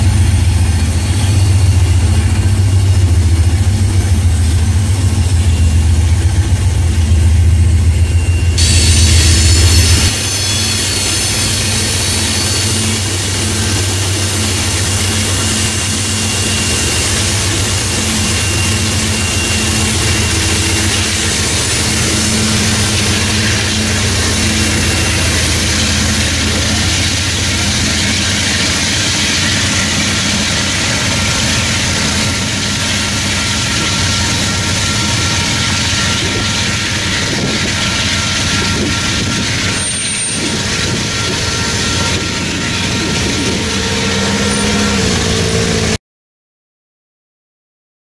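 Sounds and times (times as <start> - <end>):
diesel locomotives pulling train: 0.0 - 46.0.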